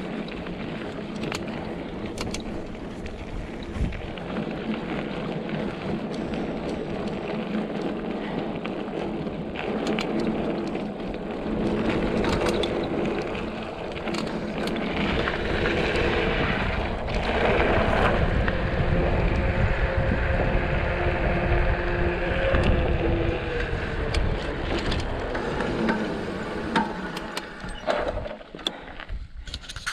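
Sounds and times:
bike rattling clicks and knocks: 0.0s - 19.6s, 22.4s - 29.9s
bike tyres on dirt: 0.0s - 29.9s
wind rumbling on microphone: 0.0s - 29.9s.

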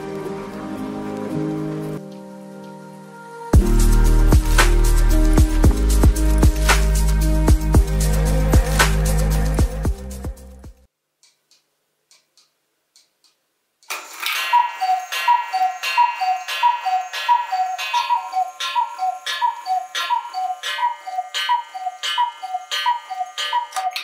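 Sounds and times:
clock mechanism click: 11.2s - 24.0s
clock ticking: 11.2s - 24.0s
bell ringing: 14.0s - 24.0s
two-note cuckoo calls: 14.2s - 24.0s.

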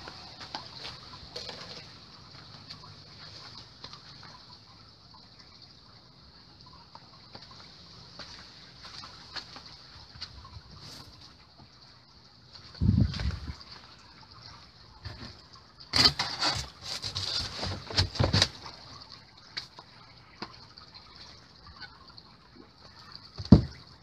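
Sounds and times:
foil board crackling and scraping: 15.9s - 18.7s
dull thump: 23.4s - 23.8s.

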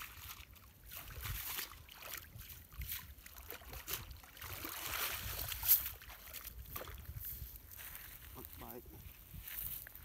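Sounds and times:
water streaming and dripping: 0.0s - 7.3s
muddy water sloshing and splashing: 0.0s - 10.0s.

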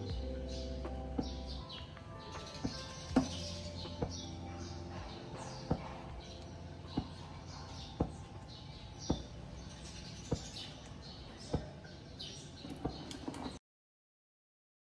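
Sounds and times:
small birds chirping: 0.0s - 13.6s.

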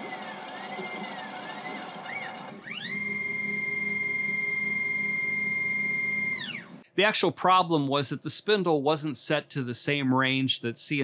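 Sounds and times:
milling machine motor whine: 0.0s - 6.8s.

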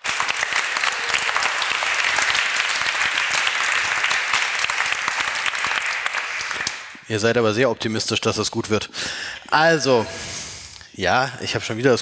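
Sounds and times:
audience applauding: 0.0s - 7.1s.

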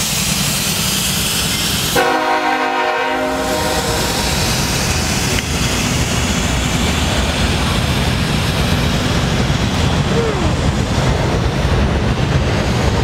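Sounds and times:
freight train rumbling past: 0.0s - 13.0s
train horn: 2.0s - 4.3s.

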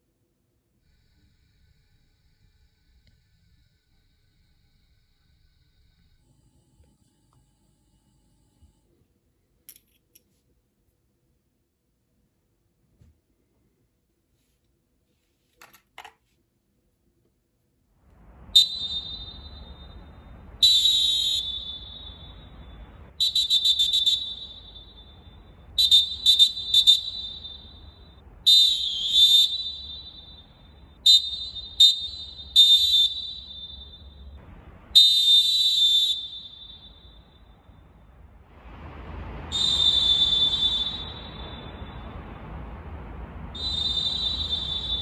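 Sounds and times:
whistle echo in stadium: 18.4s - 38.1s, 39.4s - 42.6s, 43.2s - 45.0s
referee whistle blasts: 18.5s - 37.6s, 39.5s - 42.3s, 43.5s - 45.0s.

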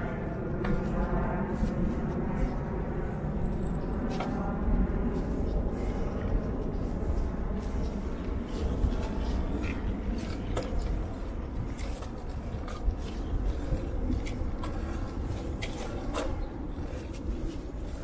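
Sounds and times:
wind rumbling on microphone: 0.0s - 18.0s
tyres humming on asphalt: 0.2s - 18.0s
bike clicks and rattles: 7.7s - 18.0s.

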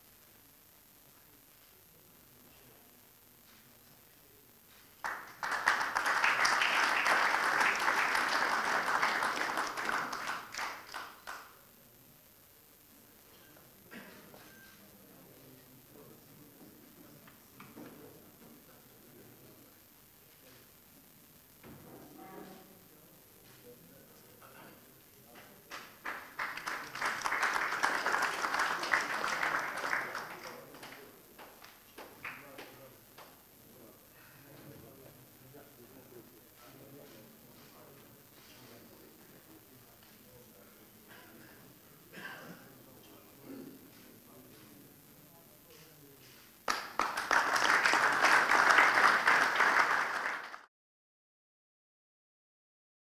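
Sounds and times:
audience applauding: 5.0s - 11.5s, 25.7s - 32.6s, 46.7s - 50.7s.

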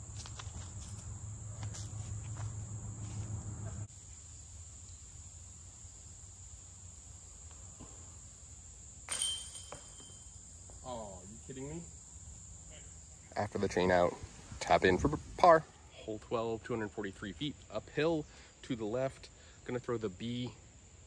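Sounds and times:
insects buzzing: 0.0s - 21.0s
disc hitting metal chains: 9.1s - 10.8s.

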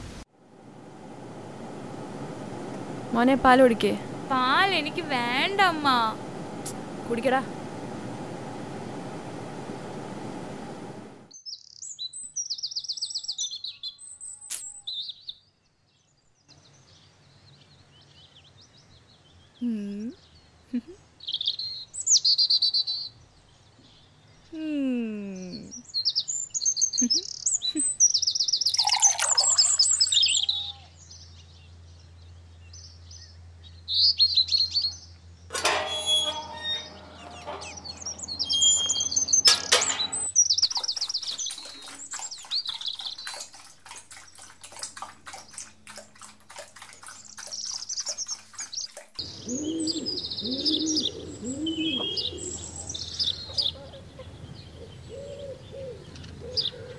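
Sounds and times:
birds chirping: 1.0s - 11.9s, 25.3s - 31.4s, 32.6s - 56.9s
rapid ticking bird calls: 26.7s - 30.5s, 36.2s - 56.9s
low cooing calls: 35.6s - 56.9s.

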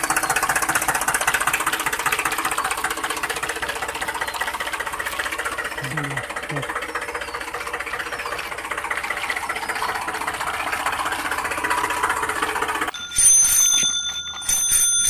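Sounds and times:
toy bell ringing: 12.9s - 15.0s.

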